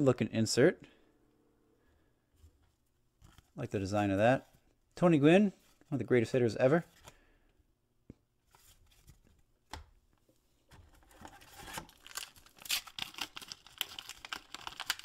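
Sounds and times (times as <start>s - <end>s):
paper wrapper crinkling and tearing: 11.1s - 15.0s.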